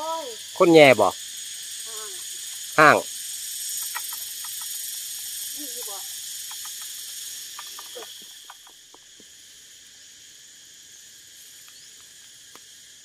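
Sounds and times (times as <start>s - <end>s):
insects buzzing: 0.0s - 13.0s
faint short chirps or ticks: 3.7s - 5.2s, 6.3s - 9.0s.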